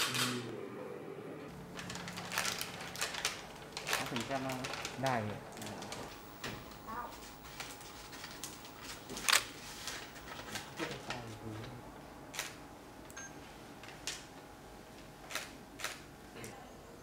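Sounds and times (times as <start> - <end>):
paper and plastic crinkling: 1.6 - 11.8.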